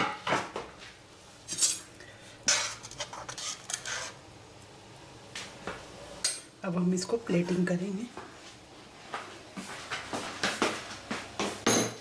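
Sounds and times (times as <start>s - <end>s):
metal ladle scraping pan: 2.5s - 4.2s.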